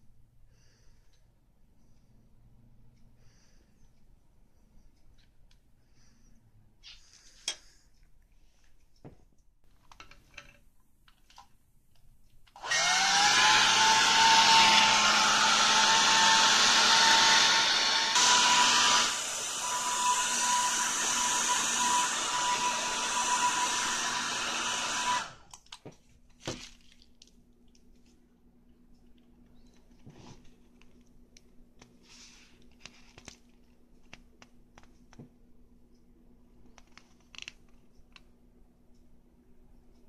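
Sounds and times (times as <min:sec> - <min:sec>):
hair dryer motor whine: 0:12.6 - 0:25.5.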